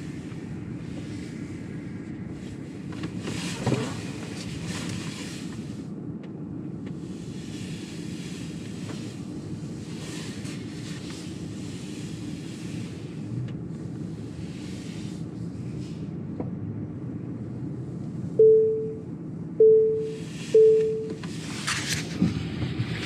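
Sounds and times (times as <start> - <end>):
road and tyre noise in car: 0.0 - 23.0.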